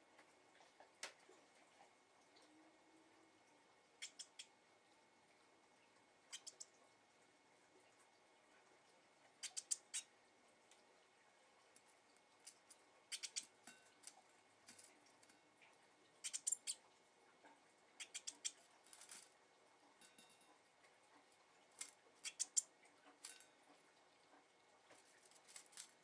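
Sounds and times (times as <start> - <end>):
bird pecking in metal bowl: 12.4 - 15.5, 18.0 - 20.6.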